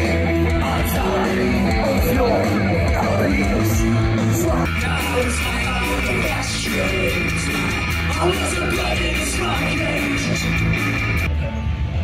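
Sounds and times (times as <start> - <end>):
live punk rock band: 0.0 - 12.0.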